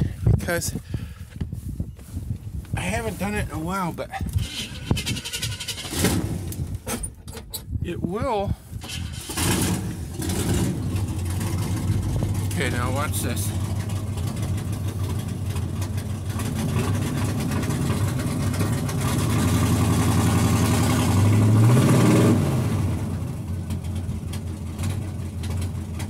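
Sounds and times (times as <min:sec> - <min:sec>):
truck engine revving: 0:04.3 - 0:06.7, 0:08.8 - 0:26.0.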